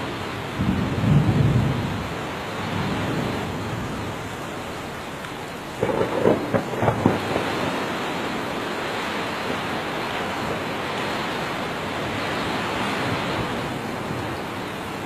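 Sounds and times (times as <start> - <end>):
steady rain: 0.0 - 15.0
thunder rumbling and cracking: 0.5 - 4.3, 5.7 - 10.7.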